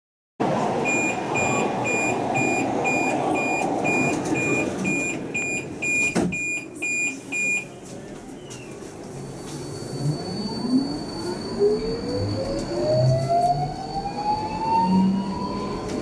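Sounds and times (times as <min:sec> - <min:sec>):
train carriage noise: 0:00.4 - 0:16.0
door warning beeps: 0:00.8 - 0:07.7.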